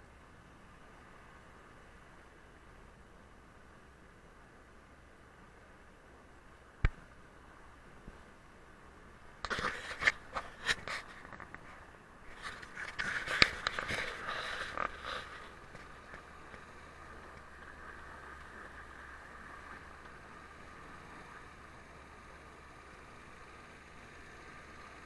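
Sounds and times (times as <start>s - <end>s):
faint steady hiss: 0.0s - 25.0s
car knocking and scraping in snow: 9.4s - 25.0s.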